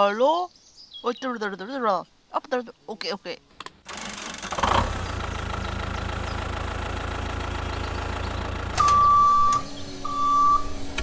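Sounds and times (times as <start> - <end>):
tractor engine idling: 3.9 - 11.0
reversing beeper: 8.8 - 10.8.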